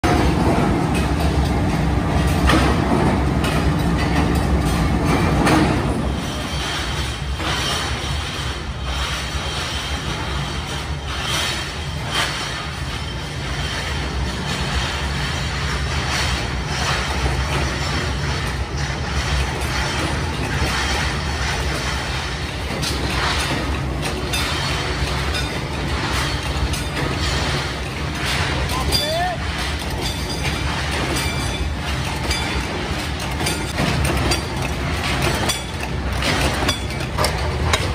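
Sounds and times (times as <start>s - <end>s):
factory machinery rumbling: 0.0s - 37.9s
sharp metal clanks: 10.1s - 37.9s.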